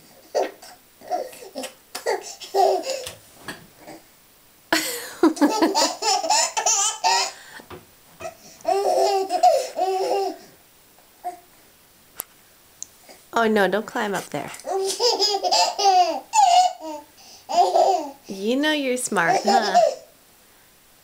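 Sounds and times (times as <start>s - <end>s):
baby giggling and laughing: 0.1s - 3.1s, 4.8s - 7.5s, 8.2s - 10.5s, 14.6s - 18.4s, 19.2s - 20.1s.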